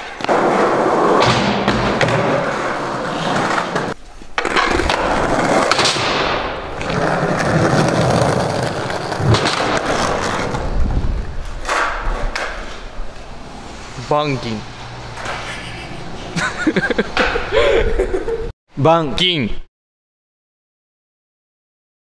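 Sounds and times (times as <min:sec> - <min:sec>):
skateboard wheels rolling: 0:00.0 - 0:14.0, 0:14.8 - 0:17.5.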